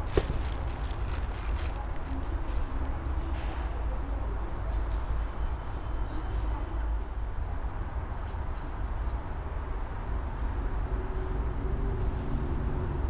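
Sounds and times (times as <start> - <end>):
tram rumbling: 0.0 - 4.7
city noise: 0.0 - 13.0.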